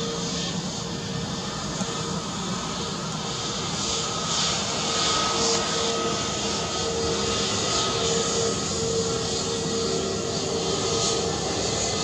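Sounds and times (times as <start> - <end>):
jet engines rumbling and whining: 0.0 - 12.0.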